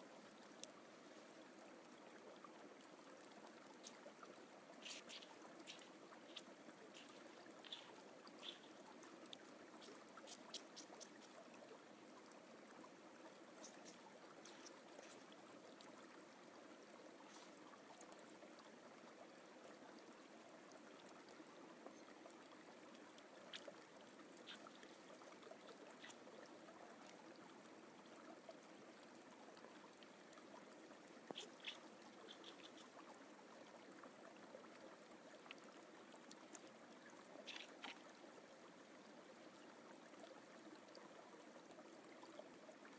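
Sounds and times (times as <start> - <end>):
light ticks: 0.4 - 0.8, 4.8 - 11.4, 31.0 - 33.1, 35.4 - 36.8.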